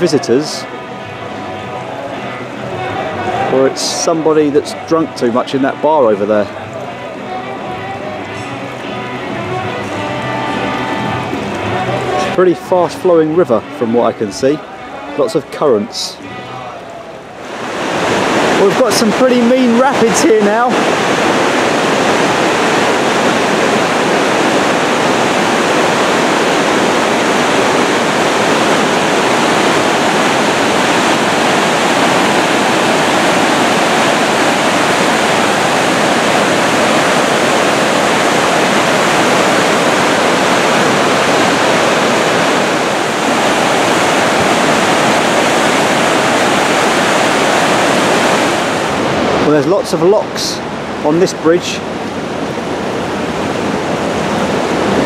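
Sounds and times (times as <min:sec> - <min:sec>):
whitewater rushing over rapids: 0:00.0 - 0:55.0.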